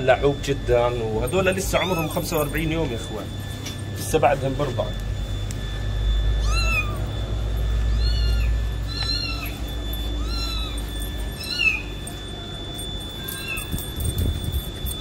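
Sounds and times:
kitten mewing: 6.4s - 7.1s, 7.9s - 10.8s.

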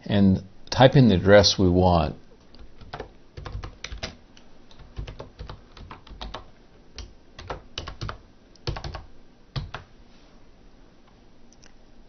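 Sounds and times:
typing on computer keyboard: 2.6s - 9.9s.

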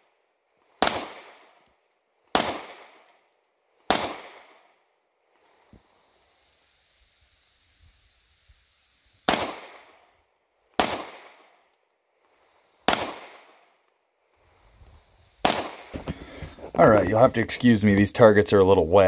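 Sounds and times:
pistol shots with echo: 0.8s - 1.6s, 2.3s - 3.2s, 3.9s - 4.8s, 9.3s - 10.0s, 10.8s - 11.6s, 12.9s - 13.7s, 15.4s - 16.0s.

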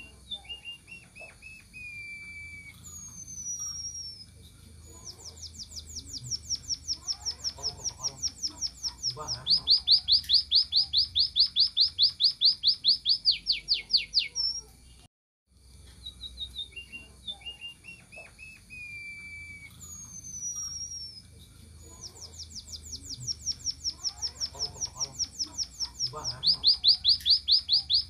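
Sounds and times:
bird calling high notes: 0.0s - 4.3s, 16.2s - 21.3s
long falling bird whistle: 0.0s - 4.3s, 16.0s - 21.2s.

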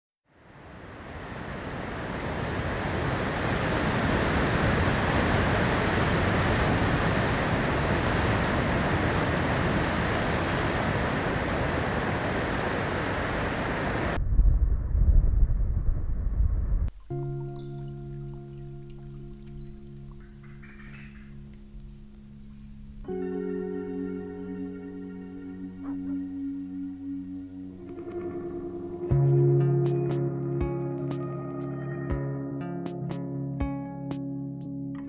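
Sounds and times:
low gusty wind rumble: 0.6s - 17.1s
surf breaking on rocks: 1.3s - 14.2s.

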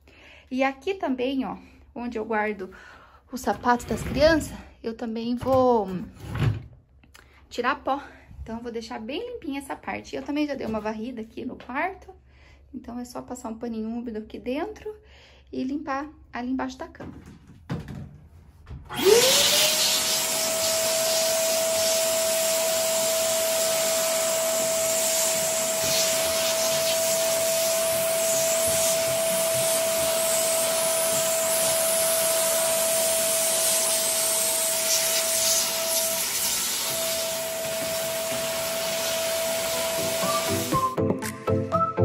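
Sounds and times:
vacuum cleaner motor whining: 18.9s - 41.0s.

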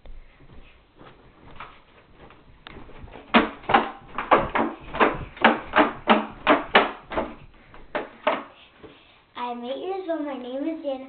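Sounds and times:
bouncing thumps on a bed: 0.0s - 8.5s.

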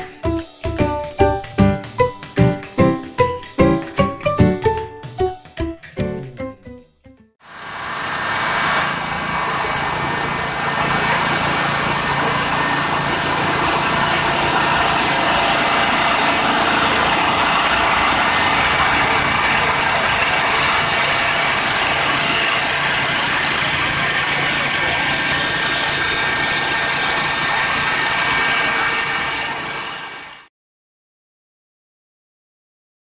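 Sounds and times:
generator engine drone: 7.4s - 30.5s.

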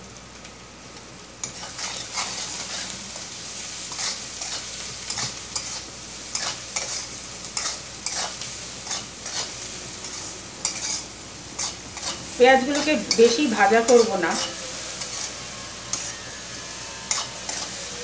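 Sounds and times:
onions sizzling in oil: 0.0s - 18.0s
spatula scraping pan: 1.4s - 2.9s, 3.9s - 18.0s.

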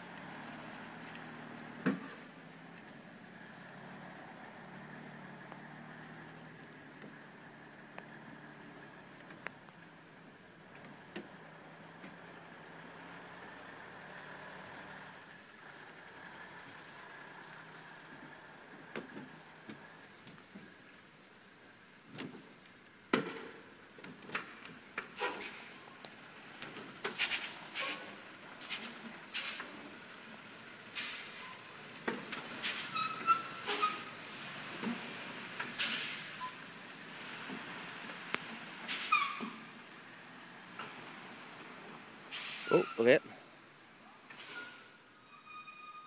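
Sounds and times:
distant diesel truck engine: 0.0s - 20.7s, 23.2s - 43.4s
even hiss: 42.3s - 43.4s.

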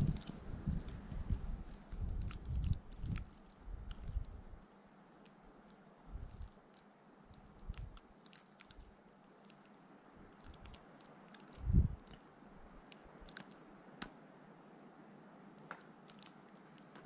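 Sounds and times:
wind gusts rumbling on microphone: 0.0s - 4.6s, 6.1s - 6.5s, 7.4s - 8.0s, 11.5s - 12.2s
wind hiss: 0.0s - 4.7s, 6.0s - 6.6s, 9.8s - 16.8s
tiny crackling ticks: 0.0s - 14.2s, 15.6s - 17.0s.

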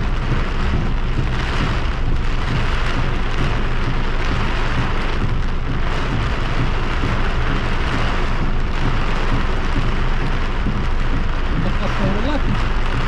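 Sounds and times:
heavy rain on car roof: 0.0s - 13.0s.

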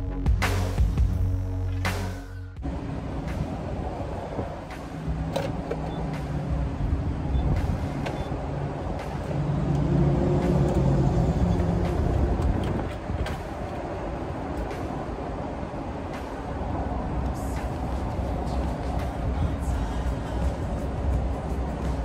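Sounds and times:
fuel nozzle clicks and knocks: 5.3s - 6.0s.

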